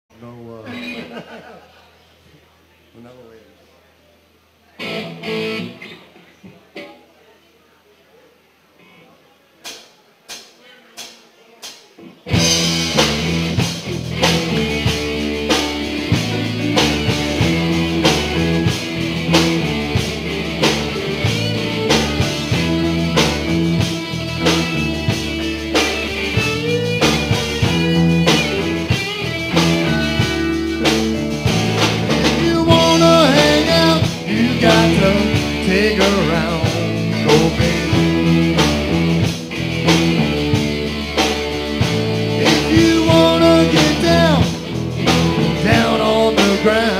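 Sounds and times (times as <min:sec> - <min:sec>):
rock band playing: 0:04.8 - 0:06.2, 0:12.2 - 0:46.9.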